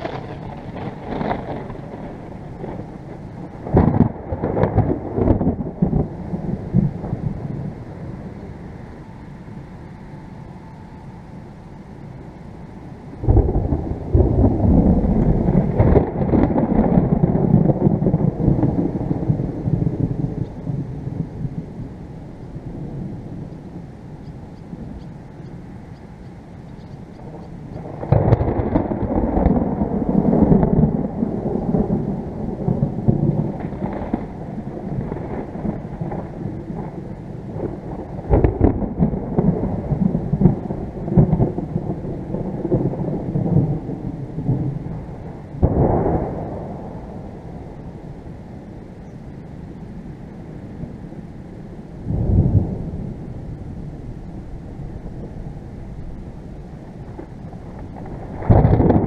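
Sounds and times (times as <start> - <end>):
thunder crack: 0.0 - 8.4, 13.2 - 21.7, 27.2 - 48.2, 52.1 - 59.0
thunder rumbling: 0.0 - 59.0.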